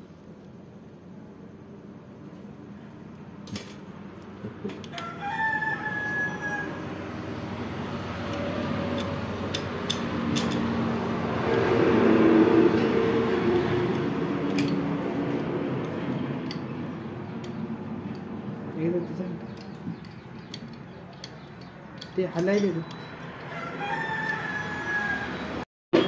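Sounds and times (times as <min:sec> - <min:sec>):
rooster crowing: 0:04.9 - 0:07.4, 0:23.4 - 0:25.6
metal tool clinks: 0:22.4 - 0:23.1.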